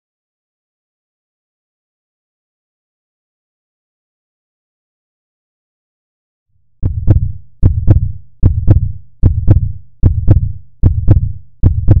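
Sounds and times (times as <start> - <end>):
electronic heartbeat thumps: 6.8 - 12.0.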